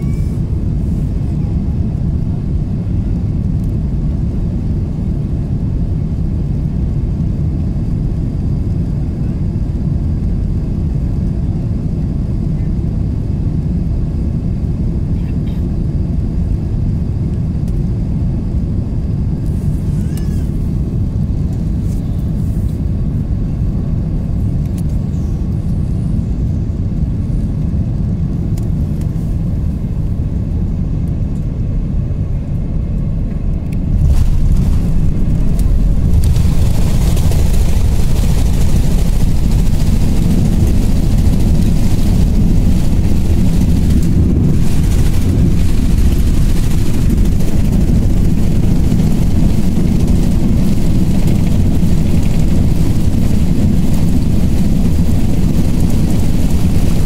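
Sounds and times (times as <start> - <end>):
airplane cabin engine rumble: 0.0 - 57.0
reverse thrust rushing: 33.8 - 55.8.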